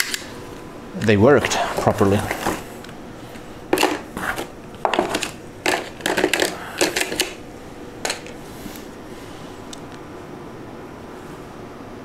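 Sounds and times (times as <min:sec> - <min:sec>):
plastic corner protectors knocking: 0:03.7 - 0:07.4.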